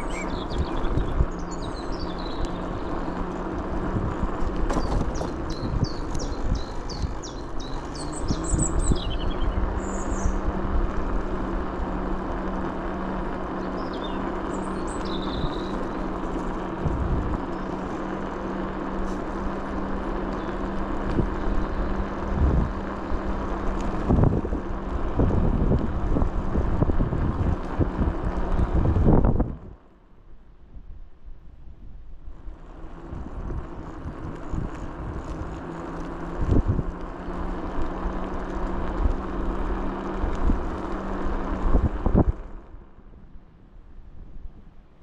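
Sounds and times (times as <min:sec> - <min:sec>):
birds chirping: 0:00.0 - 0:24.1
vehicle engine rumbling: 0:00.0 - 0:45.0.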